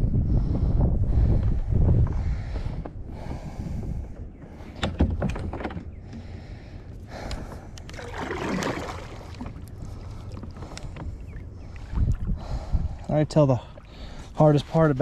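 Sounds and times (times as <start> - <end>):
paddle blade swishing through water: 7.9 - 12.4.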